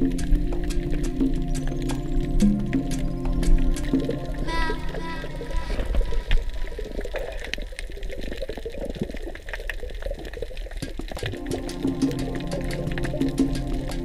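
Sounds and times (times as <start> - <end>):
background music: 0.0 - 7.0, 11.2 - 14.0
small irregular clicks: 0.0 - 14.0
water sloshing and bubbling underwater: 0.0 - 14.0.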